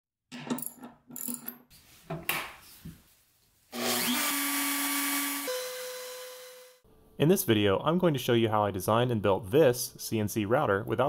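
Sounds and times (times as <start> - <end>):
router whining: 3.7 - 6.8.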